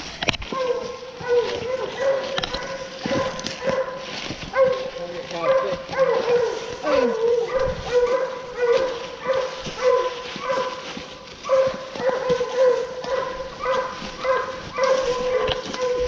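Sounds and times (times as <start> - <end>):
hounds barking: 0.4 - 16.0.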